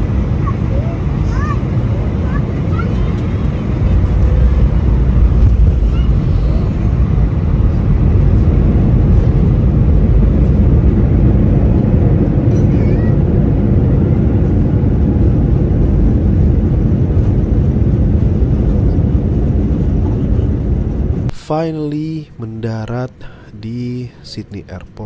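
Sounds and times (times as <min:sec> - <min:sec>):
jet cabin roar: 0:00.0 - 0:25.0.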